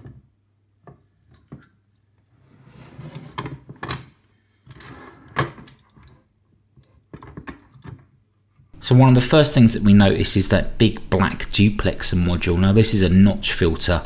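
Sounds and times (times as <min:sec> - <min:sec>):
case rubbing and scraping: 0:02.4 - 0:03.7.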